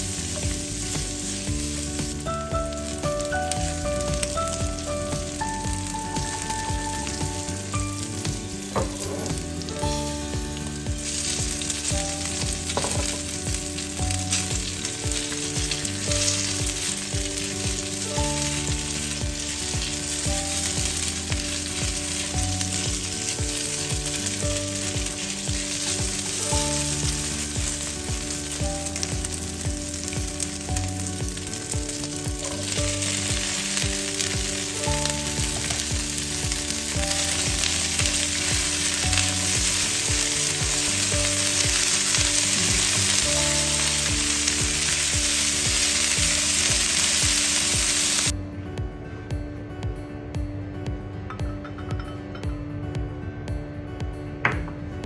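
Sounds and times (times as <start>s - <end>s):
food sizzling in hot oil: 0.0s - 48.3s
green beans tipped into pan: 12.7s - 13.3s.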